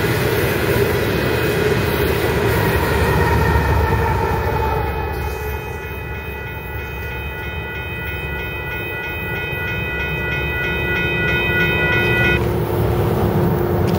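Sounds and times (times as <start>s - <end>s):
cars driving across tracks: 0.0s - 13.9s
crossing warning bell ringing: 2.6s - 12.6s.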